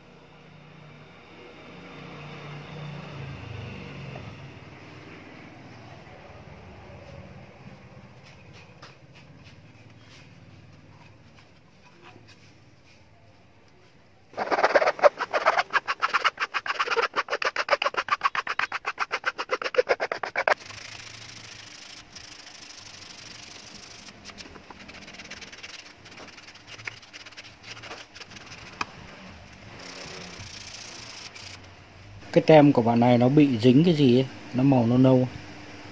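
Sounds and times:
handle tapping sanding pad: 0:14.4 - 0:28.9
hand sanding wood: 0:14.4 - 0:29.0, 0:29.7 - 0:31.6.

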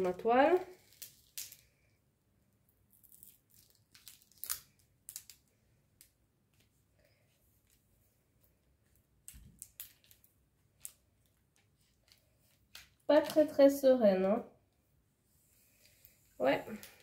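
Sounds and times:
plastic film crackling: 0:00.0 - 0:01.8, 0:02.9 - 0:06.7, 0:09.2 - 0:13.6.

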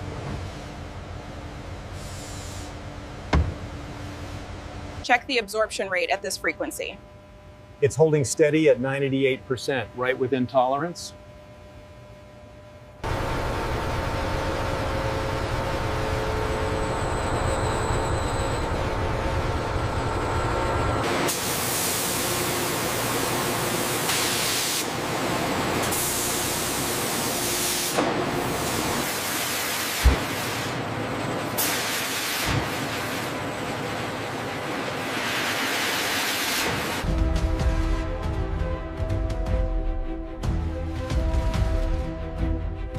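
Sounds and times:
factory machinery rumble: 0:00.0 - 0:07.0, 0:13.0 - 0:42.9
cutting machine hiss: 0:01.9 - 0:02.8, 0:21.0 - 0:25.0, 0:25.8 - 0:30.8.

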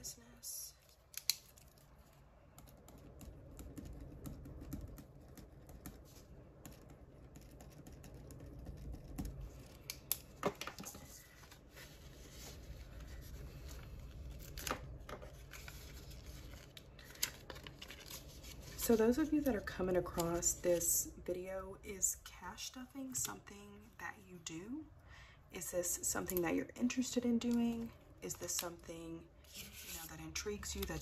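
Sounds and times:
low room hum: 0:00.0 - 0:31.0
paper and plastic rustling: 0:10.4 - 0:20.9.

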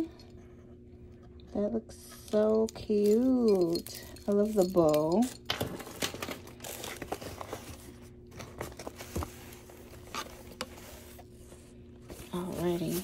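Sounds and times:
faint steady hum: 0:00.0 - 0:13.0
paper and plastic packaging handled: 0:04.4 - 0:13.0.

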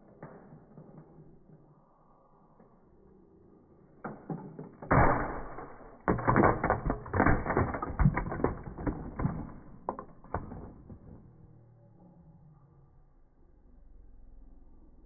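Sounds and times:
plastic bricks clattering: 0:04.3 - 0:11.3.

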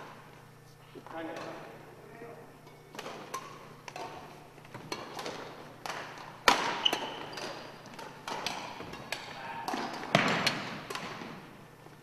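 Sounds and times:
rackets hitting shuttlecock: 0:02.9 - 0:11.6.

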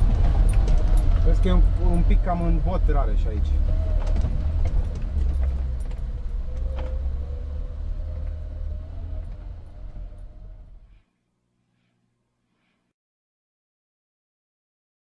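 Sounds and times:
car engine rumbling on gravel: 0:00.0 - 0:11.0.

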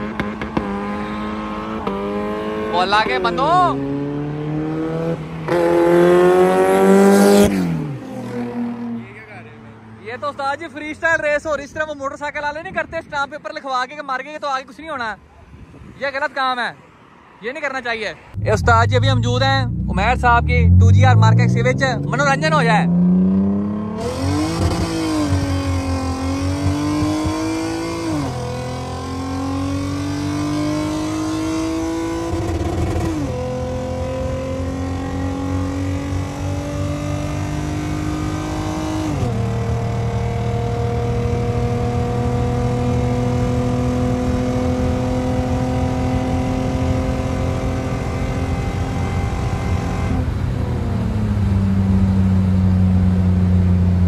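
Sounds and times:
car engine revving at full throttle: 0:00.0 - 0:09.6, 0:18.3 - 0:54.0.

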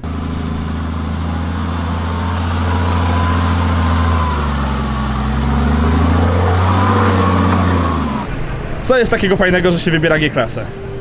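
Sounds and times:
thin whine: 0:00.0 - 0:08.4
diesel engine under load: 0:00.0 - 0:11.0.

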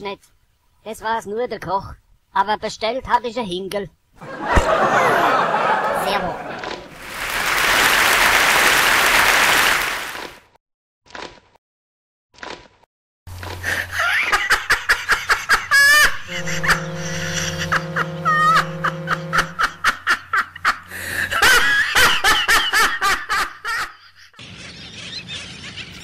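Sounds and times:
audience laughter with clapping: 0:04.2 - 0:10.3
shrill squealing laughs: 0:13.9 - 0:26.0
low ship's horn blast: 0:16.2 - 0:20.3.

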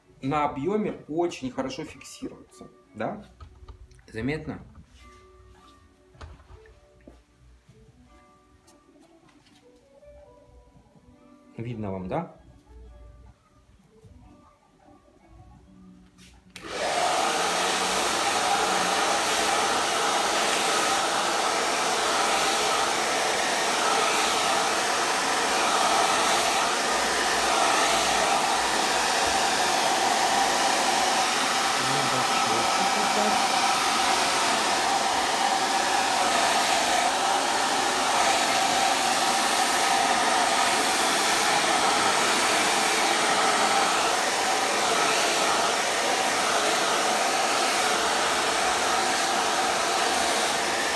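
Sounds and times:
hair dryer running: 0:16.5 - 0:50.9.

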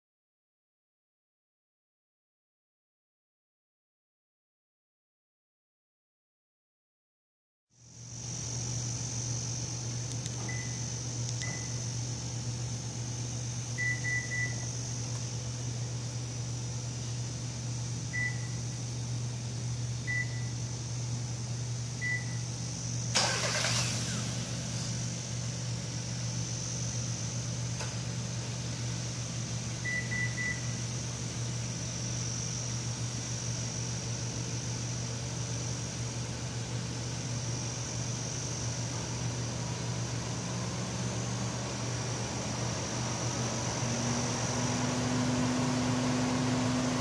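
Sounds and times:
short beeps: 0:10.4 - 0:11.9, 0:13.8 - 0:14.7, 0:18.1 - 0:18.6, 0:20.1 - 0:20.5, 0:22.0 - 0:22.4, 0:29.8 - 0:30.8
car engine cranking and running: 0:23.1 - 0:25.0.

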